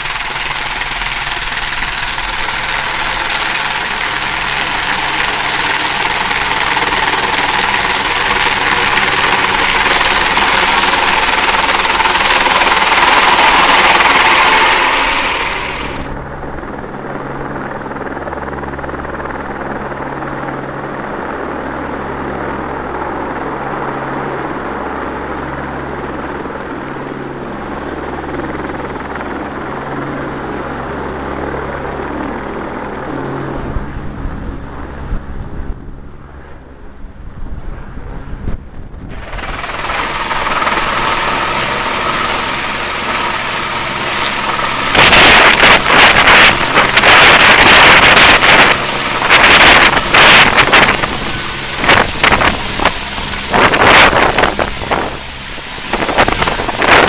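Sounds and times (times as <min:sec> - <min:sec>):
wind rush: 0:00.0 - 0:16.3, 0:37.0 - 0:57.0
steady low hum: 0:00.0 - 0:17.0, 0:35.8 - 0:57.0
helicopter running overhead: 0:00.0 - 0:57.0.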